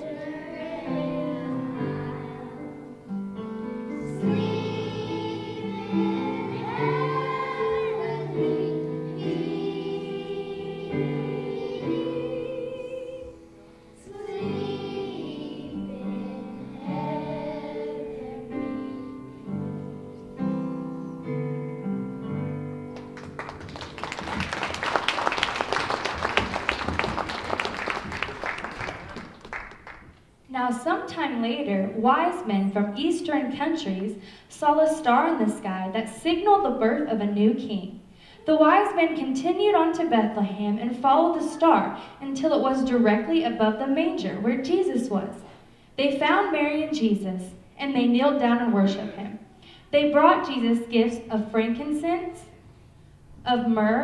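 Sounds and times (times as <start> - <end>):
children's choir singing: 0.0 - 3.1, 3.7 - 19.8
audience applause: 23.0 - 30.2.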